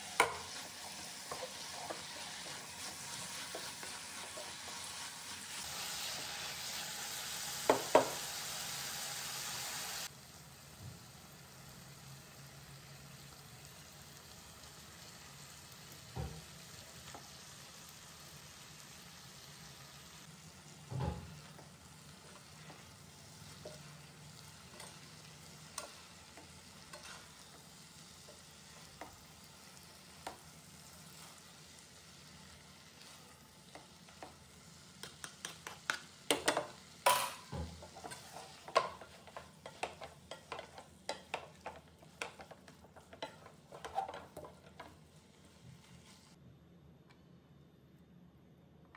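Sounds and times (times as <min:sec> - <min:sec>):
spatula scraping and clattering pan: 0:00.0 - 0:06.2, 0:20.9 - 0:29.4, 0:33.0 - 0:46.3
food sizzling in a pan: 0:00.0 - 0:46.4.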